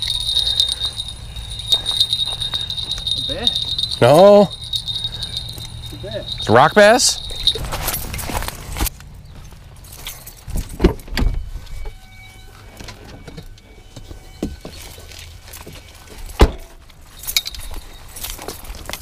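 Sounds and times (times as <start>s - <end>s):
steady low rumble: 0.0s - 10.2s.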